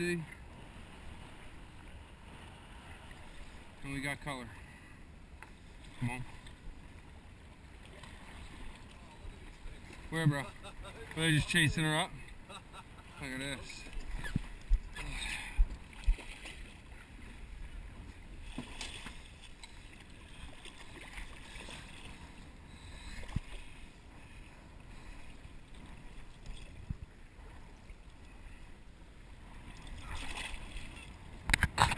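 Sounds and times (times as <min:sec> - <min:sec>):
water lapping against boat hull: 0:00.0 - 0:31.9
wind on microphone: 0:13.9 - 0:16.4, 0:25.8 - 0:27.7.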